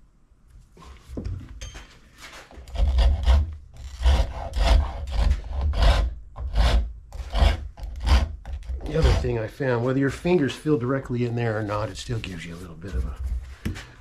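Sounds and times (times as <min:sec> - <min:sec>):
rasp scraping wood: 0:02.5 - 0:09.5.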